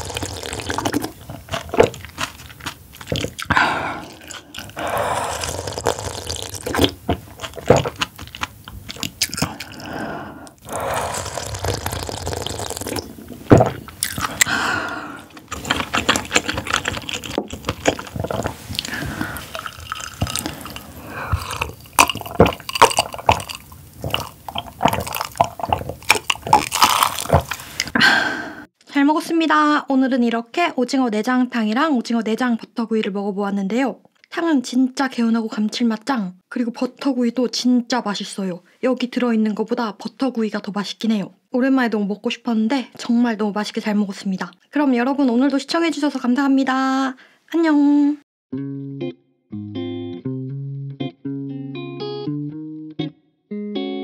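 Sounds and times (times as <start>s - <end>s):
wet chewing: 0.0s - 28.0s.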